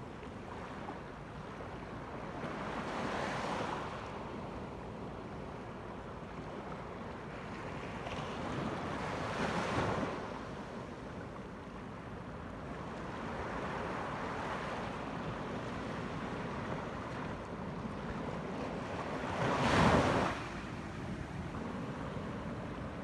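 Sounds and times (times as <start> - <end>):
small waves washing on beach: 11.9 - 23.0.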